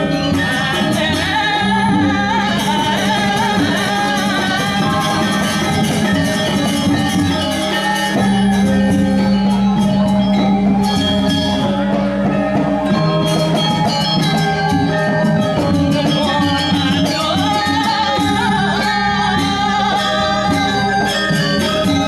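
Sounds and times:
gamelan playing: 0.0 - 22.0.

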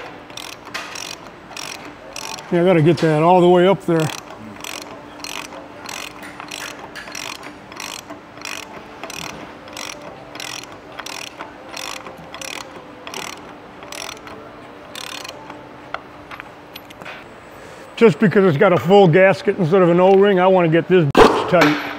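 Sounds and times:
ratchet wrench clicking: 0.0 - 17.0.

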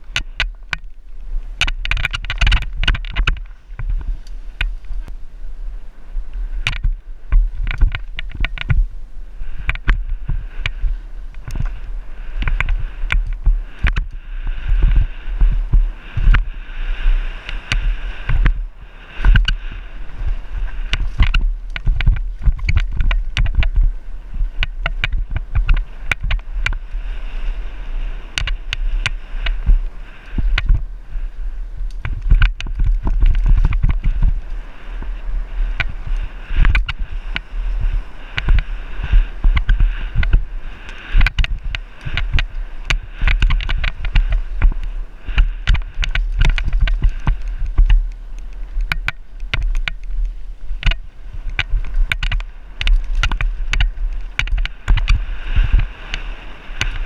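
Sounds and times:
tyres on dirt and stones: 0.0 - 5.2
wind rumble on microphone: 0.0 - 57.0
bike rattling and clacking: 1.6 - 5.1, 6.7 - 8.9, 9.6 - 16.5, 17.4 - 27.4, 28.2 - 30.9, 31.9 - 57.0.

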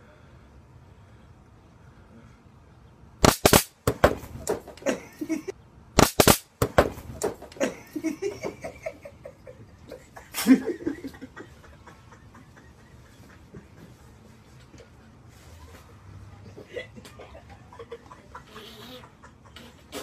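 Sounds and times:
stun gun crackling: 3.2 - 4.9, 6.0 - 7.6
people laughing: 4.7 - 5.5, 7.5 - 20.0.

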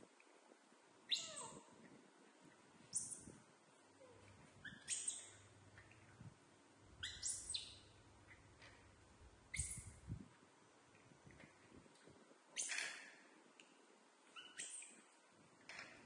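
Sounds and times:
baby monkeys squeaking chirps: 1.1 - 1.6, 4.6 - 5.4, 7.0 - 7.9, 9.5 - 10.0, 14.3 - 15.0.

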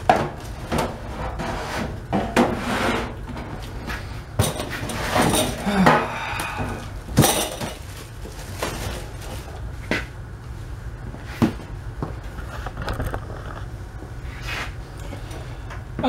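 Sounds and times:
plastic trash bag rustling: 6.8 - 10.2.

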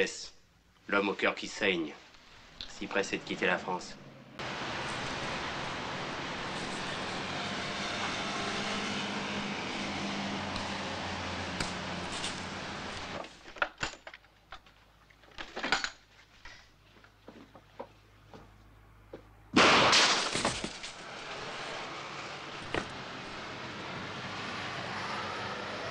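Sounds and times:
street traffic noise: 2.2 - 13.3, 17.2 - 25.9
rummaging knocks and clicks: 13.1 - 16.6.

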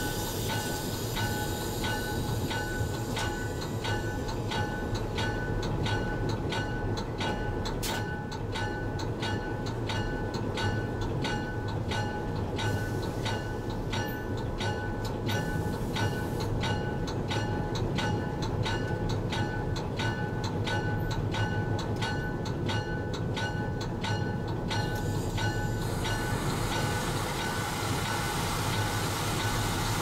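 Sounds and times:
locomotive bell ringing: 0.0 - 29.7.

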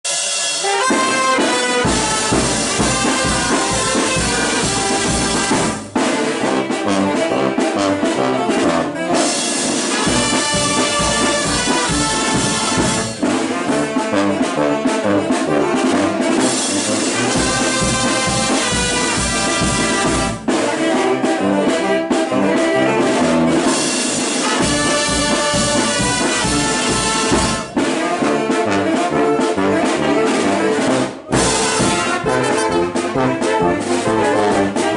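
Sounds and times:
brass band playing lively tune: 0.0 - 34.9.

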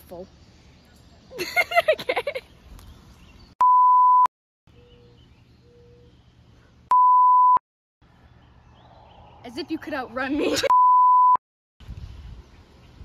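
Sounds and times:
faint outdoor background: 0.0 - 13.0
censor bleeps: 3.6 - 4.3, 6.9 - 7.6, 10.7 - 11.4.

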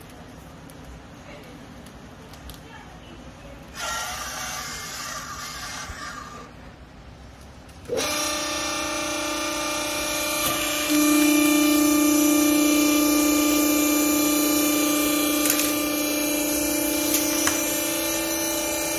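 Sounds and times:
hydraulic baler motor humming: 7.8 - 18.9.

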